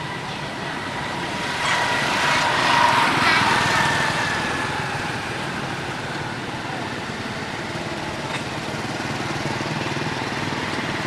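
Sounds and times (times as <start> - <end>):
small motor vehicle passing: 0.0 - 11.0.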